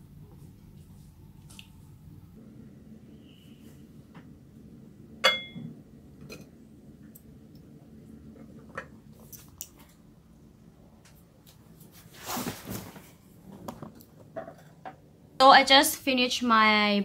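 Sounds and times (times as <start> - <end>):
low hum: 0.0 - 9.2
tableware clinking: 5.2 - 6.5.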